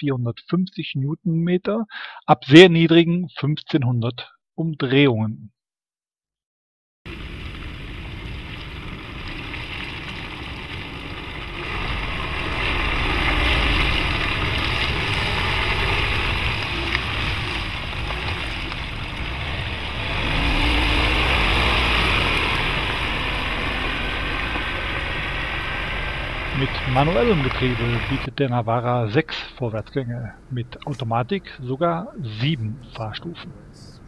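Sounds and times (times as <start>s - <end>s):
diesel engine pulling: 7.1s - 28.3s.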